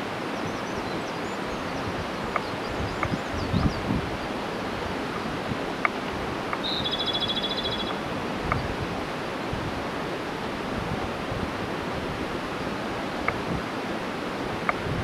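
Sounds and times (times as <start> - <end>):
mountain stream rushing: 0.0 - 15.0
bird singing a trill: 0.4 - 3.9, 6.6 - 8.0.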